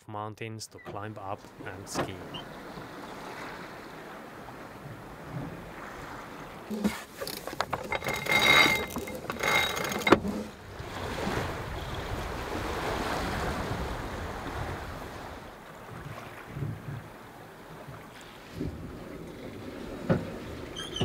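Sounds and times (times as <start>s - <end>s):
wind: 0.0s - 21.0s
water rushing: 0.8s - 16.5s
winch squeaks: 2.0s - 2.8s, 6.7s - 10.6s, 20.6s - 21.0s
deck winch clicking: 6.7s - 10.6s.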